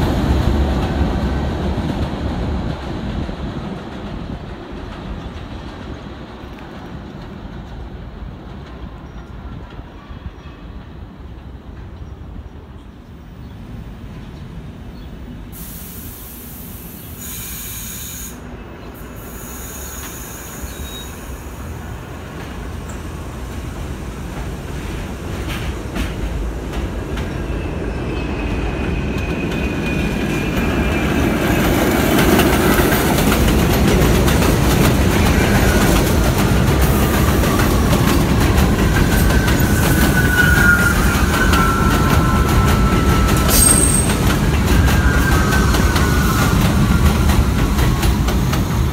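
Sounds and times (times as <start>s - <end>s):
subway train rumble: 0.0s - 48.9s
wheels and brakes squealing: 17.0s - 21.7s, 27.3s - 31.8s, 37.0s - 47.2s.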